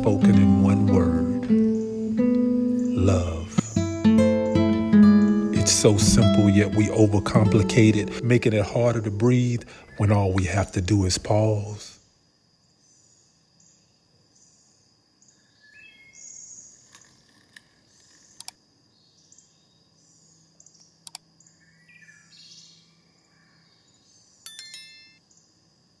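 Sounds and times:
steady high tone: 0:00.0 - 0:09.6
birds chirping and calling: 0:00.0 - 0:10.4
sharp clicks: 0:20.8 - 0:21.3
notification bell ding: 0:24.5 - 0:25.2.

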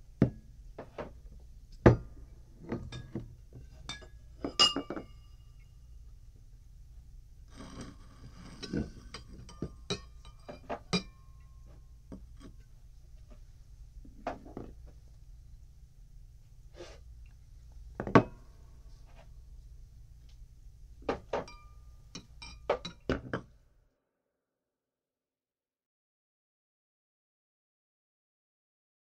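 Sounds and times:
drinking glasses clinking: 0:03.9 - 0:05.4, 0:21.4 - 0:23.1.

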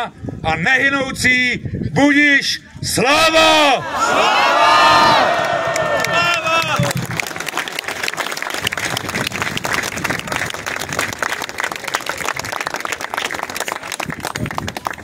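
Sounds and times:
crowd applauding: 0:05.1 - 0:15.0.

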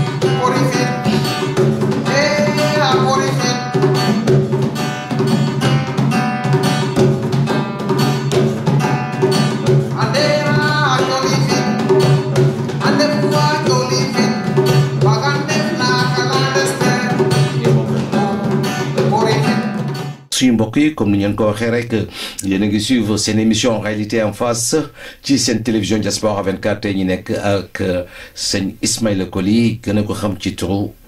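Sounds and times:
person singing: 0:00.0 - 0:04.2, 0:09.9 - 0:12.0, 0:12.8 - 0:19.9
djembes beating: 0:00.0 - 0:20.2
acoustic guitar: 0:00.0 - 0:30.3.

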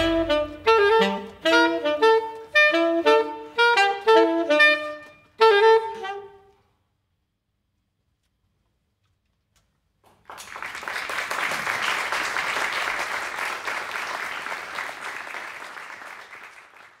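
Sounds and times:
audience applauding: 0:10.1 - 0:17.0.

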